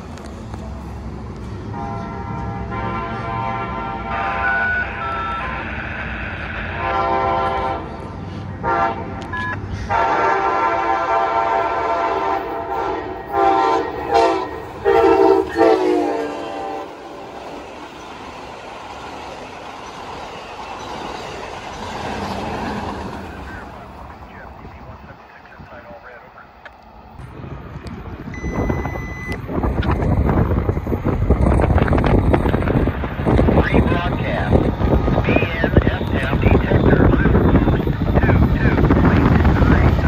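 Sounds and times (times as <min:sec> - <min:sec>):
train passing rumble: 0:00.0 - 0:40.0
train horn blasts: 0:01.7 - 0:08.0, 0:08.6 - 0:17.1.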